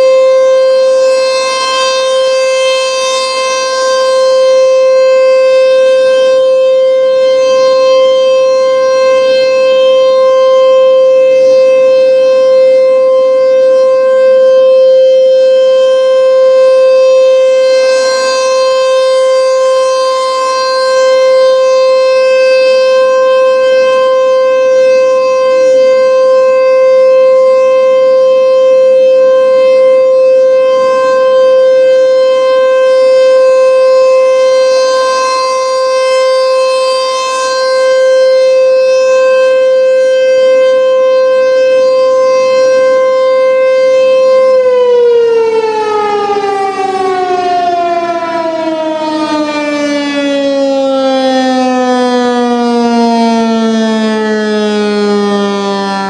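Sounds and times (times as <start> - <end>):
rotating siren alert tone: 0.0 - 56.0.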